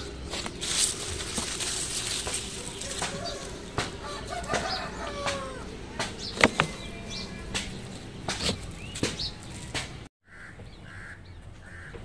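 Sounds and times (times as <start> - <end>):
faint birds chirping: 0.0 - 12.0
phone handling knocks and rustles: 6.3 - 6.8.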